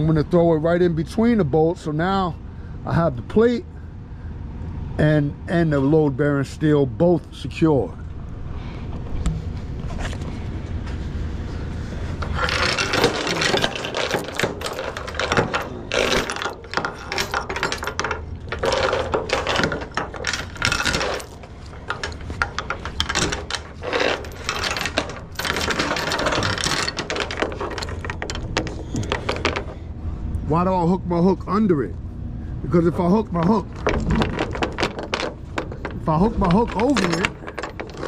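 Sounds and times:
chain clanking on wooden deck: 0:12.2 - 0:29.9, 0:32.9 - 0:38.0.

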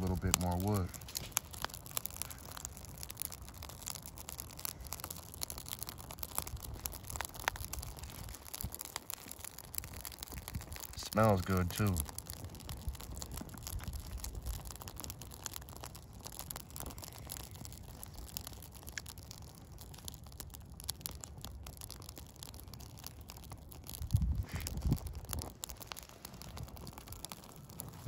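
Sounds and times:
wind rumble: 0:00.0 - 0:18.3, 0:23.9 - 0:28.0
fire crackling and popping: 0:00.0 - 0:28.0.

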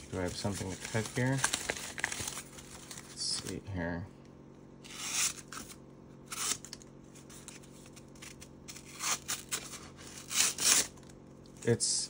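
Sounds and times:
knife slicing paper: 0:04.8 - 0:11.0.

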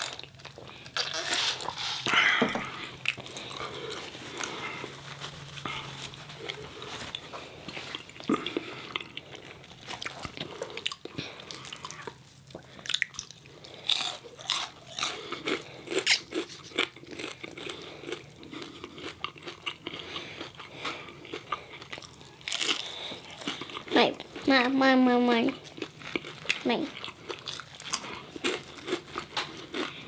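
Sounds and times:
crunchy bites and chewing: 0:05.5 - 0:24.4, 0:25.5 - 0:30.0.

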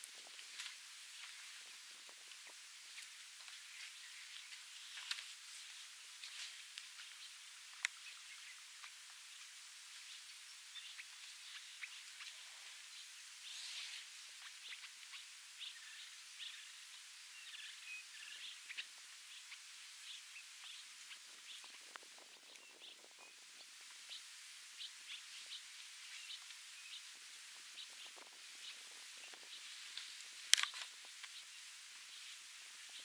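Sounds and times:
steady hiss: 0:00.0 - 0:33.0
soft rustling: 0:00.1 - 0:07.5.

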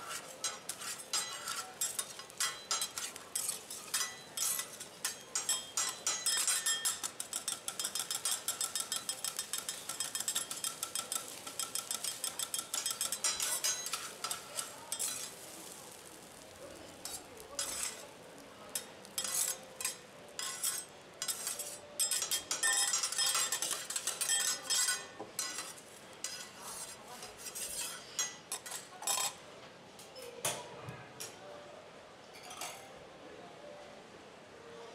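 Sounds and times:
metal spatulas clacking on griddle: 0:00.0 - 0:29.4.

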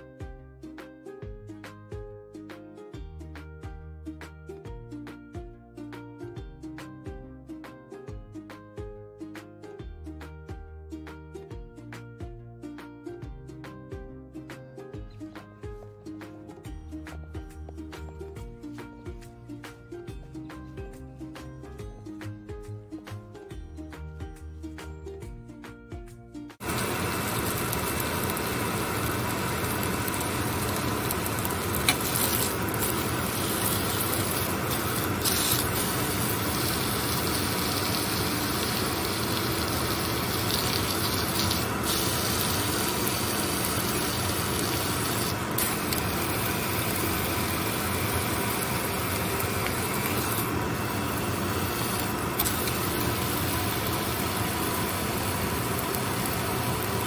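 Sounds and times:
meat sizzling in a pan: 0:26.6 - 0:57.0.

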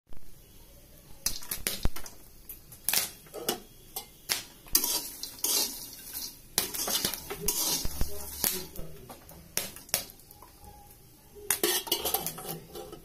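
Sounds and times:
scraping and clinking in a pan: 0:02.9 - 0:09.9, 0:11.5 - 0:13.0
popcorn rustling: 0:04.3 - 0:13.0.

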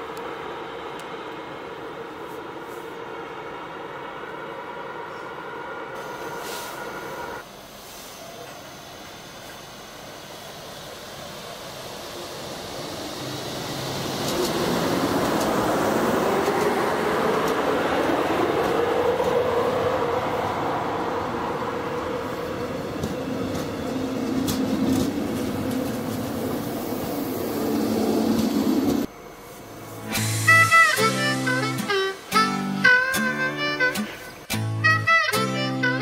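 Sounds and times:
train passing with whine: 0:00.0 - 0:36.0
wheels clicking over rail joints: 0:22.9 - 0:26.6.

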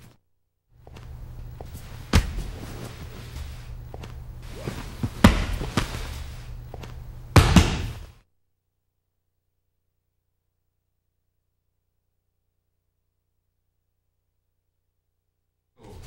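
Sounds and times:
steady low hum: 0:00.8 - 0:08.2
sharp thuds and slaps: 0:05.0 - 0:06.1, 0:07.4 - 0:08.2.

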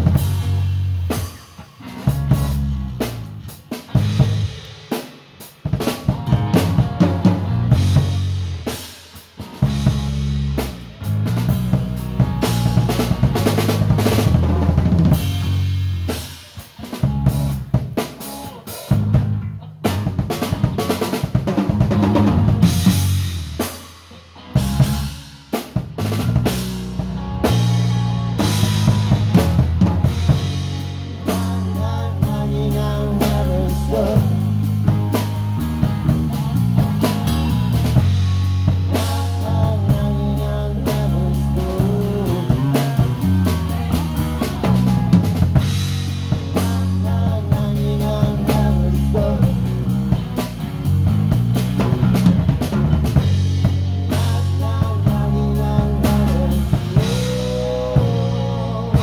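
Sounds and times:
bass guitar notes: 0:00.0 - 0:59.0
drum kit playing: 0:00.0 - 0:59.0
live rock band: 0:00.0 - 0:59.0.

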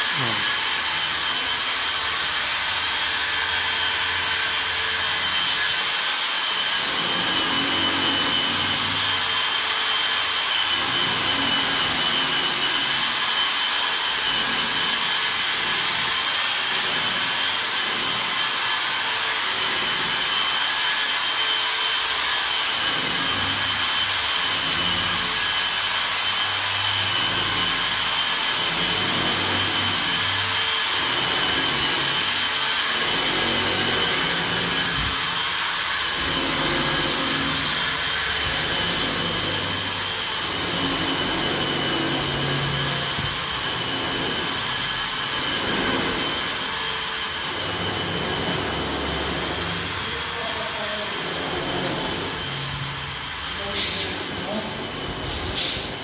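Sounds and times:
loud machine hiss: 0:00.0 - 0:01.9.

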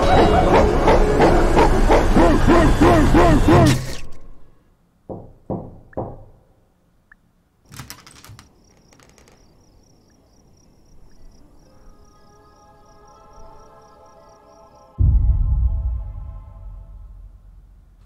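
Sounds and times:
knocking on a door: 0:05.1 - 0:06.4
soft sustained music: 0:11.4 - 0:18.0.

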